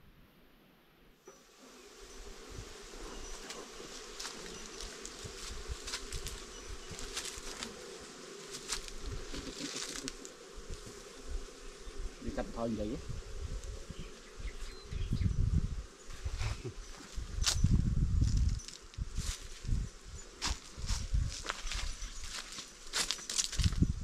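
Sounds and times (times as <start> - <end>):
rustles: 1.3 - 11.4, 15.9 - 24.0
insect swarm buzzing: 1.3 - 24.0.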